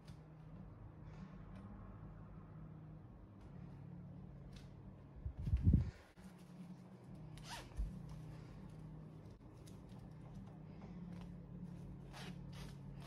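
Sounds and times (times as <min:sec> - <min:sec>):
low room hum: 0:00.0 - 0:13.0
zipper rasp: 0:12.0 - 0:13.0.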